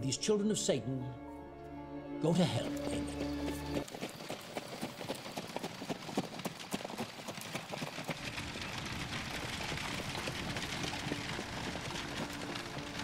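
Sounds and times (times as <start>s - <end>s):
horse hoofbeats clattering: 2.4s - 13.0s.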